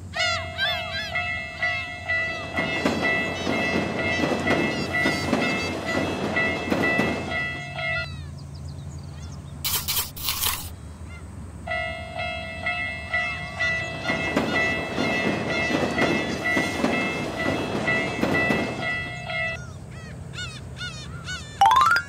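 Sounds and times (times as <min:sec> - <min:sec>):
crossing warning bell ringing: 0:00.3 - 0:08.1, 0:11.7 - 0:19.6
train clattering over rails: 0:00.7 - 0:08.6, 0:11.8 - 0:19.6
short hissing bursts: 0:09.7 - 0:10.7.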